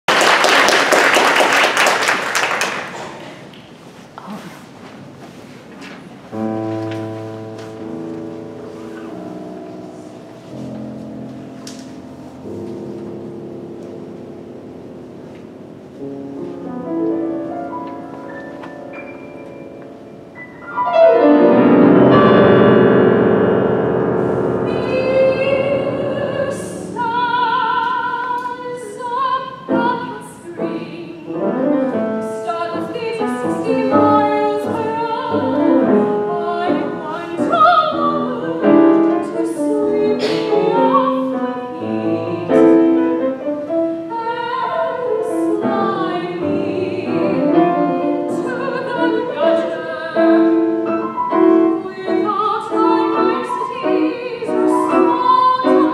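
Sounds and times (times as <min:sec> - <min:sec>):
grand piano accompaniment: 0:00.1 - 0:55.9
soprano singing operatic: 0:24.7 - 0:55.9.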